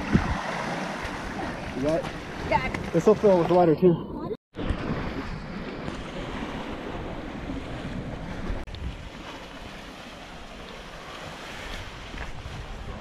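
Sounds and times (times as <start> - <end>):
wind buffeting microphone: 0.0 - 3.3, 11.4 - 13.0
ocean surf on rocks: 0.0 - 3.6, 4.6 - 13.0.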